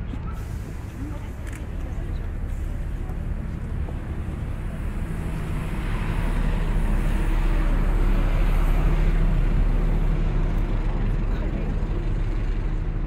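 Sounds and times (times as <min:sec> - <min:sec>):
bus engine rumble: 0:00.0 - 0:13.0.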